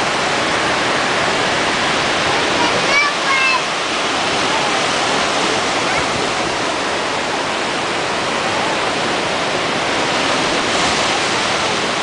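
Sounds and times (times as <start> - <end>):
surf breaking over rocky shore: 0.0 - 12.0.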